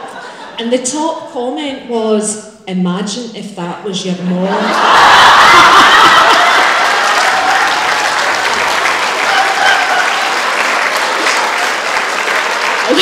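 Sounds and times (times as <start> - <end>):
audience laughing: 0.0 - 0.6, 4.5 - 11.8
audience applauding: 4.7 - 13.0.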